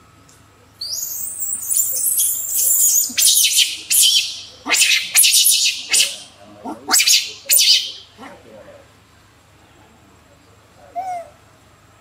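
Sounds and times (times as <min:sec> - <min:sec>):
monkeys screaming: 0:00.8 - 0:08.2.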